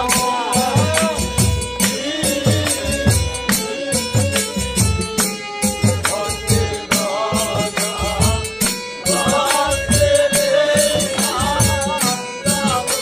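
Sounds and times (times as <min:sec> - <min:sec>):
drum beating steady rhythm: 0:00.0 - 0:13.0.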